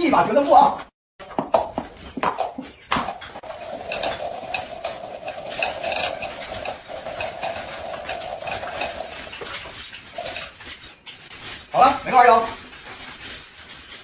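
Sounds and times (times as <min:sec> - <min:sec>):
cups clicking: 0:01.3 - 0:10.5
cups scraping on rubber mat: 0:01.8 - 0:14.0.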